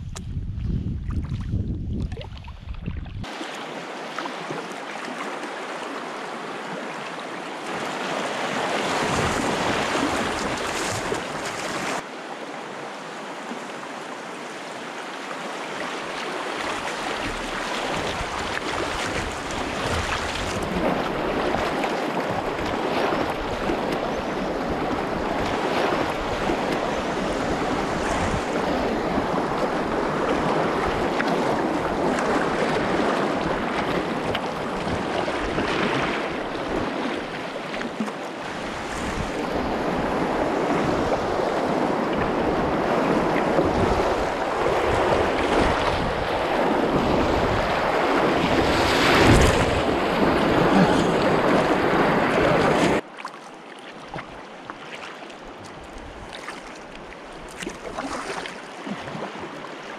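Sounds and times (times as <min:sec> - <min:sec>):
wind on microphone: 0:00.0 - 0:03.3, 0:07.8 - 0:12.0, 0:16.6 - 0:37.8, 0:38.4 - 0:53.0
waves splashing around kayak: 0:01.2 - 0:59.9.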